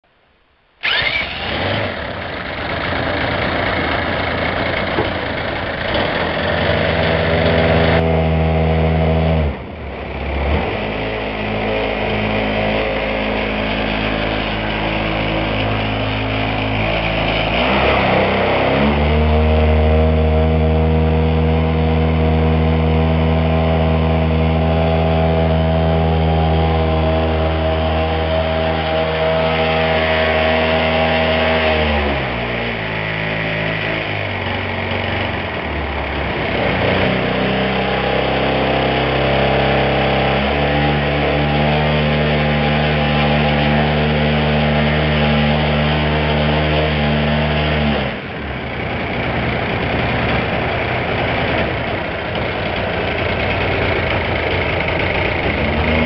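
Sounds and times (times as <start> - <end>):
model plane engine running: 0.8 - 56.0.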